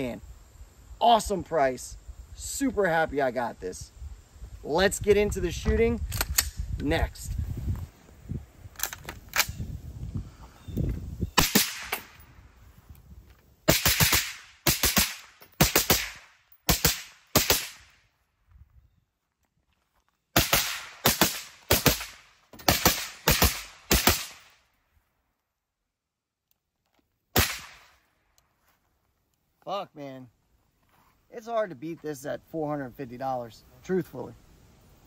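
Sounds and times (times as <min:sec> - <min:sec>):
suppressed rifle shots: 0:11.4 - 0:12.2, 0:27.4 - 0:27.9.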